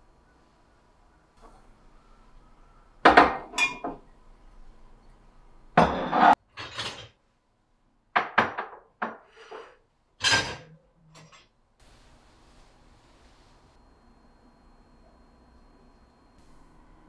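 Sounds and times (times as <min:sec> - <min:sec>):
dishes and glassware clinking: 0:03.1 - 0:04.1, 0:05.8 - 0:07.2, 0:10.2 - 0:11.5.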